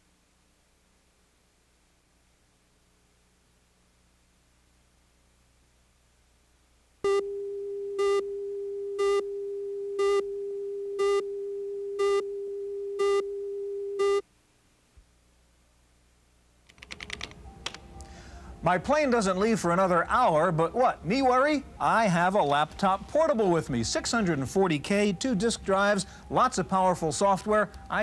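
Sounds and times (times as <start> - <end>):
short loud beeps: 12.0 - 12.3
faint programme audio: 15.1 - 28.0.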